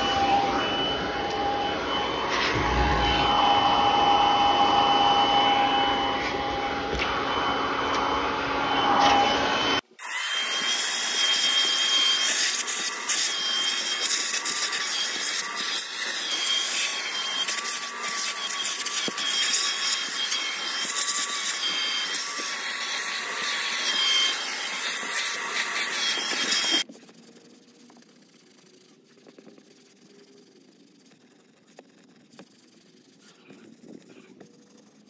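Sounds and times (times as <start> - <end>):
vacuum cleaner whining: 0.0 - 26.9.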